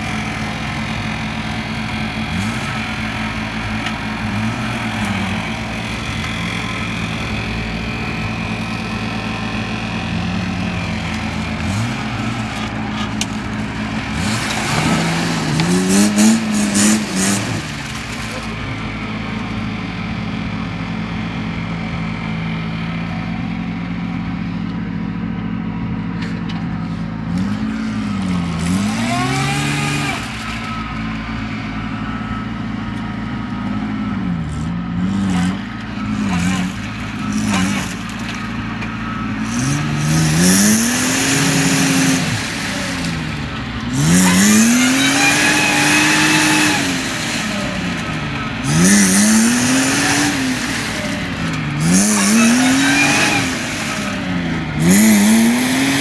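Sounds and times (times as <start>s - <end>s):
tyres spinning in mud: 0.0s - 20.5s
off-road vehicle engine revving: 0.0s - 25.3s, 26.3s - 56.0s.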